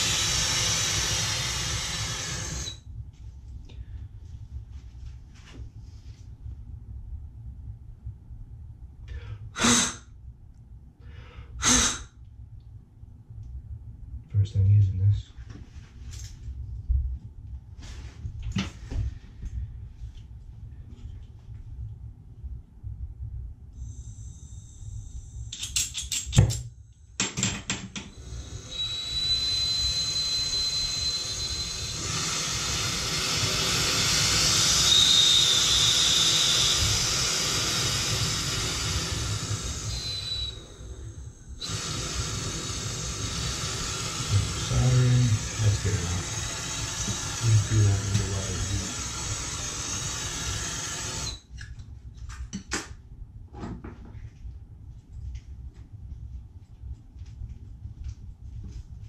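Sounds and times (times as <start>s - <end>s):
torch flame hissing: 0.0s - 2.5s, 40.6s - 51.0s.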